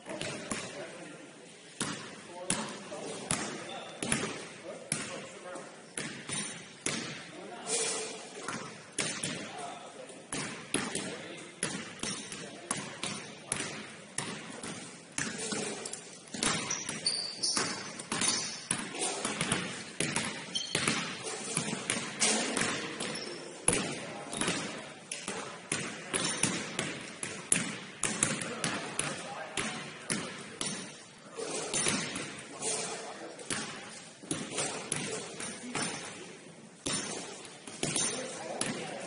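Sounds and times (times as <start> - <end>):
basketballs bouncing on wooden floor: 0.0 - 0.8, 1.8 - 5.3, 6.0 - 7.3, 8.4 - 9.6, 10.3 - 31.0, 31.7 - 32.4, 33.4 - 36.2, 36.8 - 39.0
shoe squeaks: 16.6 - 19.3, 20.4 - 21.6, 23.0 - 23.6.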